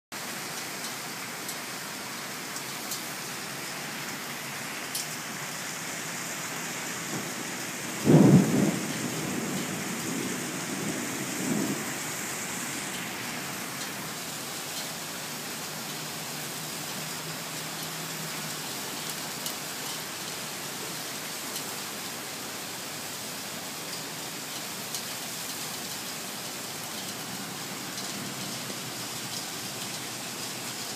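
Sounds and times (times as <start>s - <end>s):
rain hissing: 0.2s - 30.9s
thunderclap rumbling: 7.0s - 13.1s.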